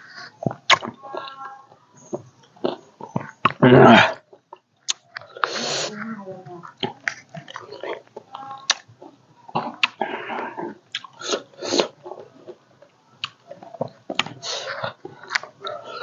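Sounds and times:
person chewing juicy fruit: 0.0s - 16.0s
sharp mouth clicks: 9.6s - 10.1s, 10.9s - 12.0s
wet mouth smacks: 11.0s - 11.2s.

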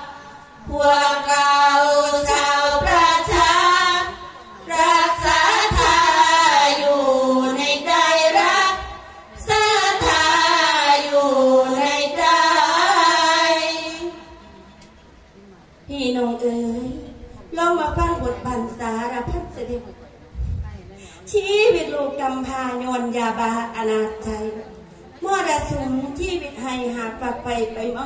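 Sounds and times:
women singing together: 0.0s - 14.5s.

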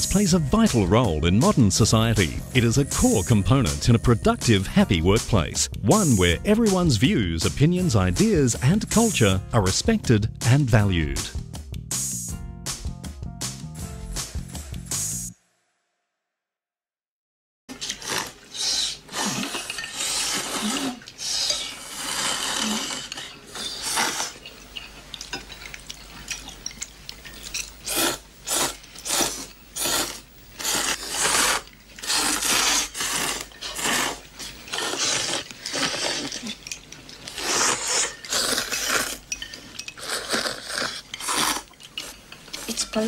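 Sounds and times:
people slurping noodles: 17.7s - 24.6s, 27.7s - 43.0s
chopsticks and bowls clinking: 19.2s - 28.1s, 31.7s - 43.0s.

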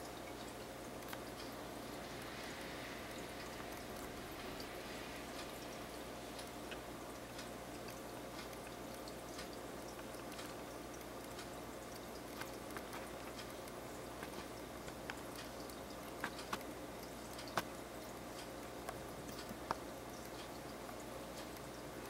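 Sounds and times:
aquarium water hiss: 0.0s - 22.0s
faint steady hum: 0.0s - 22.0s
water drips and pops: 5.4s - 21.9s.

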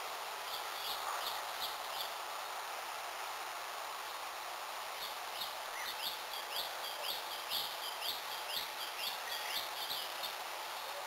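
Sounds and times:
steady background hiss: 0.0s - 11.0s
bird chirping: 0.4s - 2.2s, 5.0s - 11.0s.

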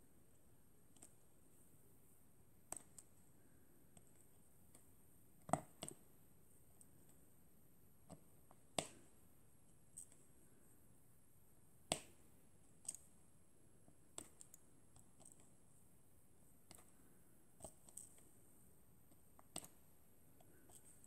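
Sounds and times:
small sharp clicks: 19.4s - 19.8s.

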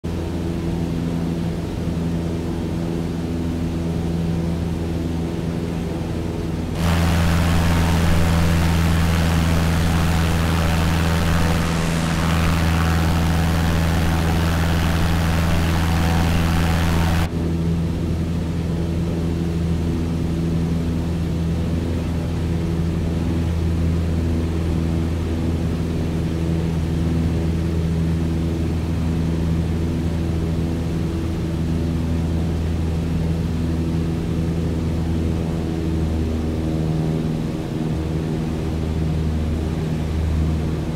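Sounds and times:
engine droning hum: 6.8s - 17.3s
loud rushing hiss: 6.8s - 17.3s.

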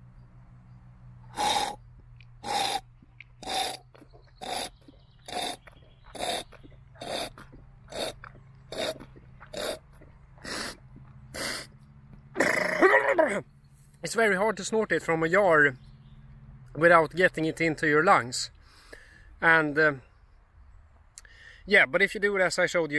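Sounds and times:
man snorting through nose: 1.3s - 1.8s, 2.4s - 11.8s, 12.4s - 13.0s.

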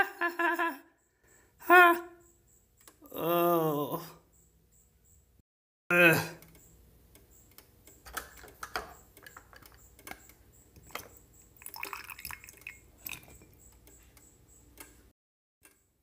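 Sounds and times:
small handling clicks and knocks: 7.5s - 11.1s
liquid pouring into a bowl: 10.8s - 13.5s.

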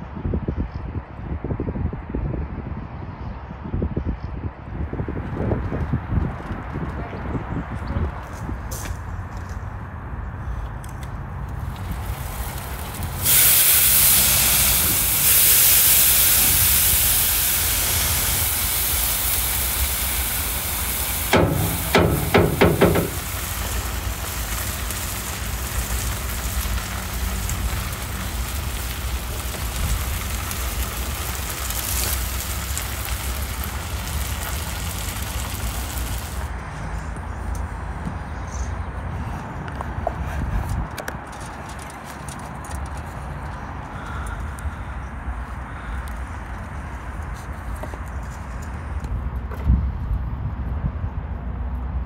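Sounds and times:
burger patties sizzling on a grill: 11.5s - 36.5s
ringing metallic knocks: 21.3s - 23.3s.

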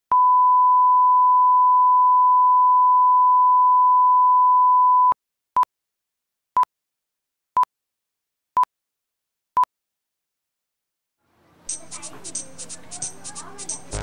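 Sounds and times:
short beeps: 0.1s - 5.2s.

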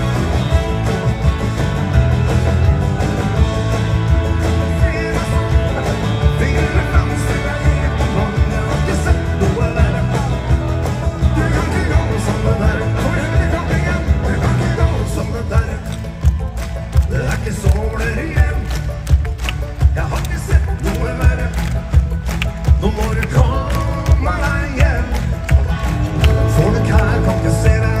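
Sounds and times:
live band playing rock and roll: 0.0s - 28.0s
person singing: 4.4s - 19.0s, 22.7s - 28.0s.

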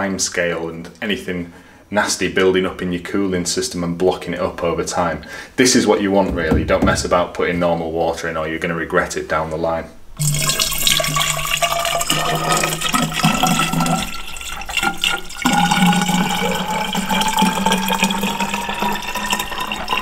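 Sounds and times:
water pouring into a tank: 10.2s - 20.0s.

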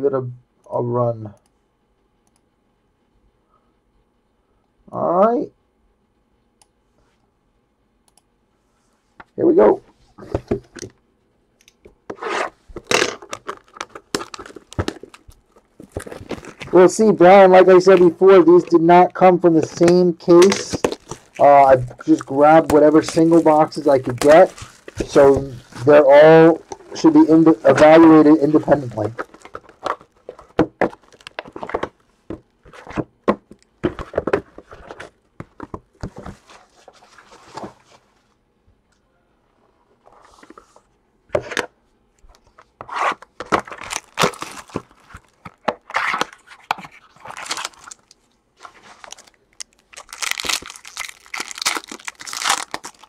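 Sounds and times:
shrink-wrap tearing: 13.0s - 16.8s, 19.6s - 31.8s, 43.6s - 48.2s, 48.9s - 53.0s
cardboard rustling and sliding: 22.0s - 31.8s, 36.0s - 38.2s.

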